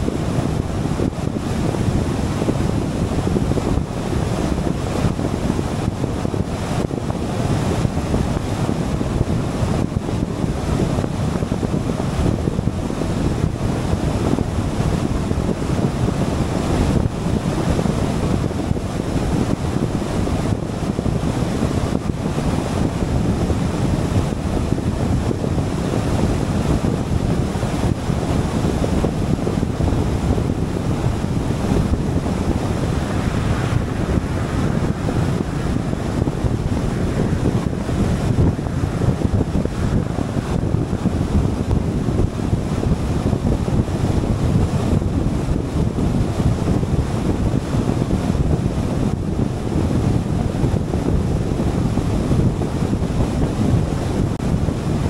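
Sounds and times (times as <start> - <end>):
wind rush over microphone: 0.0 - 55.0
car road and tyre noise: 30.0 - 44.0.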